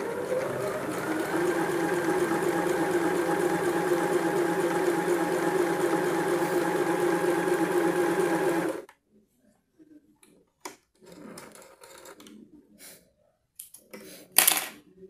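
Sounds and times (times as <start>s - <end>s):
sewing machine stitching: 0.0s - 8.9s.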